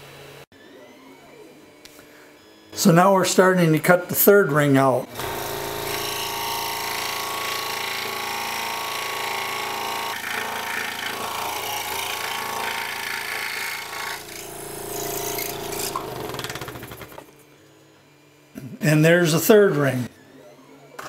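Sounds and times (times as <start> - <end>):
scroll saw cutting wood: 5.1 - 17.4.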